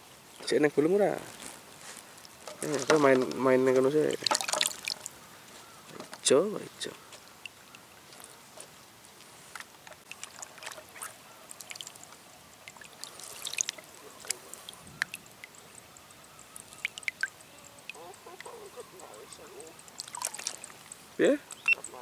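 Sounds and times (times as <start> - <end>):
water lapping and trickling: 0.0 - 22.0
water splash: 4.0 - 5.2, 10.0 - 15.6, 19.9 - 21.1.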